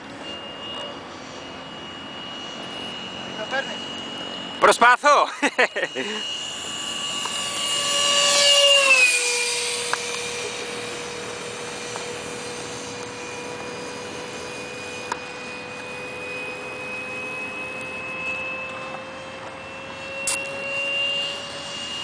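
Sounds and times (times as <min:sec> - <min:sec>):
model jet fan whine: 0:00.0 - 0:22.0.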